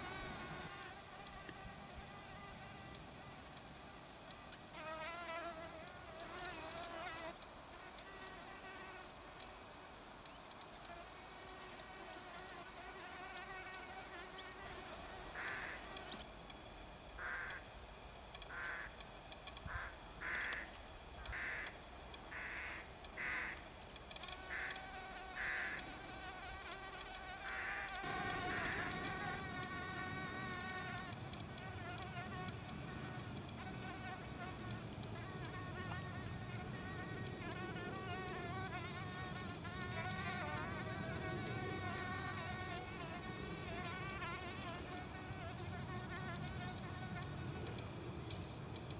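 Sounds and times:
bees buzzing: 0.0s - 3.4s, 11.2s - 16.2s, 24.2s - 47.9s.

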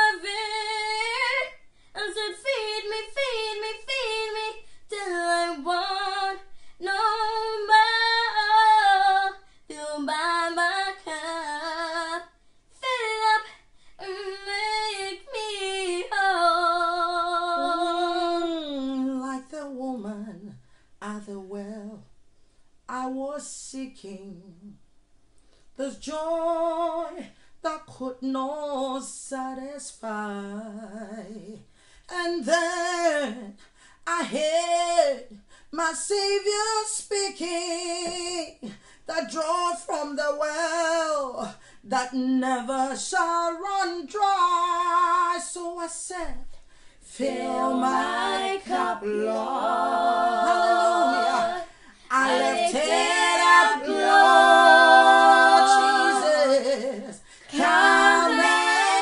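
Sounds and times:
women singing unaccompanied: 0.0s - 22.0s, 47.2s - 59.0s.

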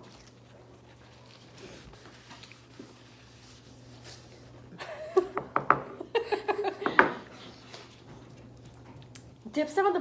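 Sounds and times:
woman laughing: 4.7s - 7.2s.

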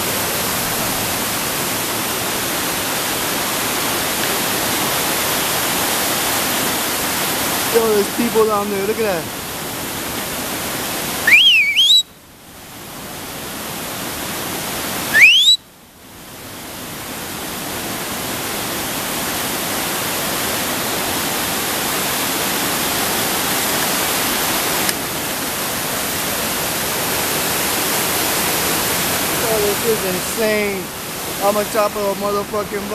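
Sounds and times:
waterfall rushing over rocks: 0.0s - 32.9s
person whistling: 11.3s - 12.1s, 15.1s - 15.6s.

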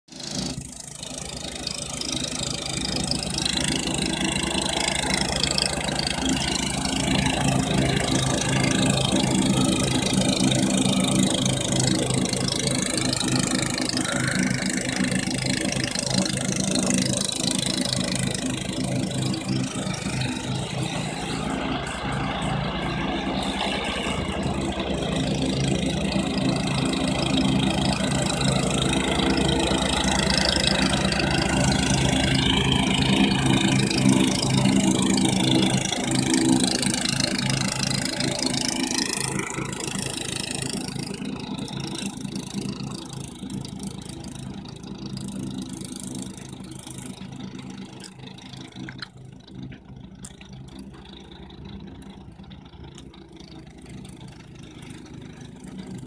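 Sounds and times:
riding mower engine running: 0.1s - 56.0s.

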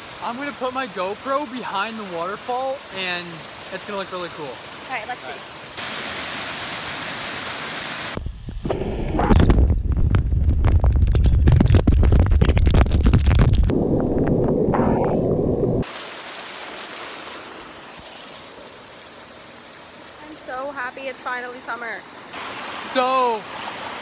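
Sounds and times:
small waterfall rushing: 0.0s - 8.2s, 15.8s - 24.0s.

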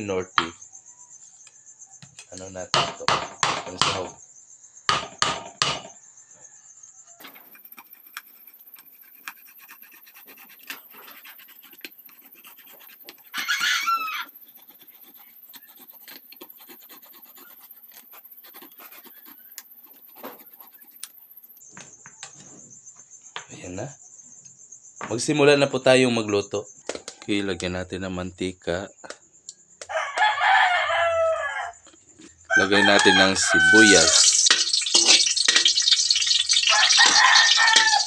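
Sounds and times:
squealing scrape: 7.0s - 21.6s, 31.8s - 38.0s
knife scraping tin rim: 7.2s - 21.1s, 33.9s - 38.0s.

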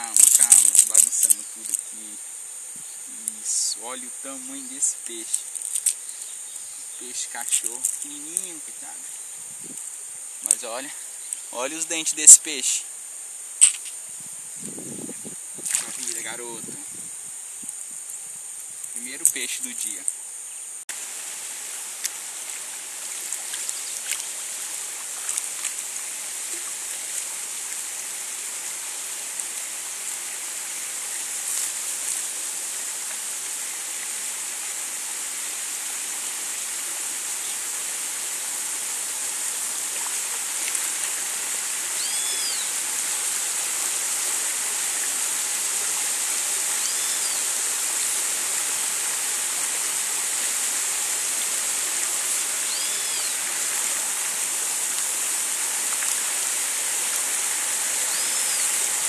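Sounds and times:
water rushing over rapids: 15.6s - 16.6s, 20.9s - 59.0s.

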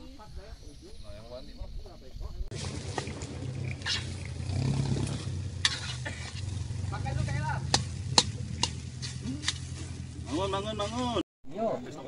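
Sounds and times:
spatula scraping a pan: 5.6s - 6.5s.

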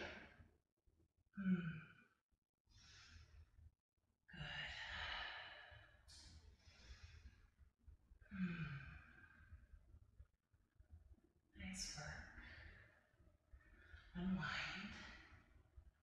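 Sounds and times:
woman breathing: 2.7s - 3.6s, 4.4s - 9.8s, 12.3s - 15.6s.

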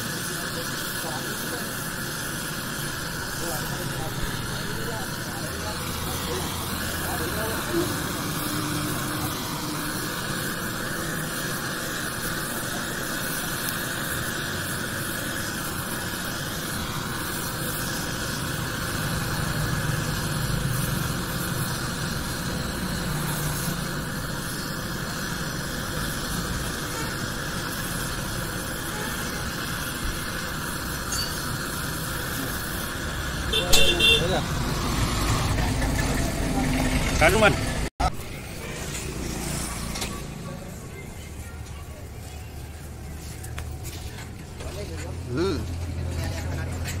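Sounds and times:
gas torch flames hissing: 0.0s - 47.0s.

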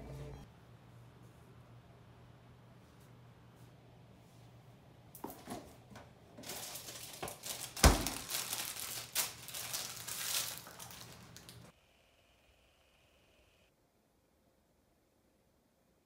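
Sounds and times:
candy wrapper crinkling and tearing: 6.4s - 11.7s.

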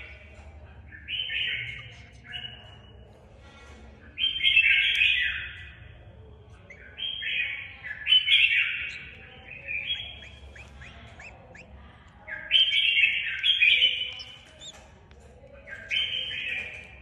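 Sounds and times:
bird harsh scratchy calls: 6.5s - 17.0s.

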